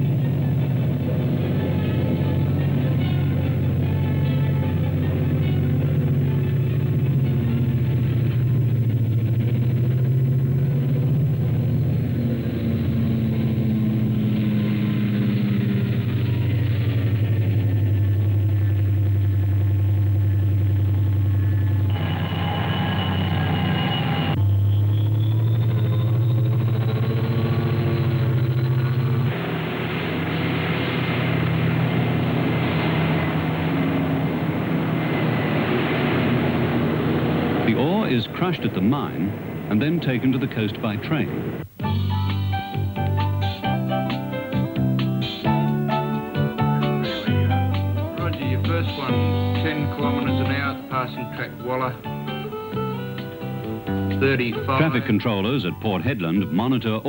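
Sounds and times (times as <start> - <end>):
haul truck diesel engines: 0.0 - 57.0.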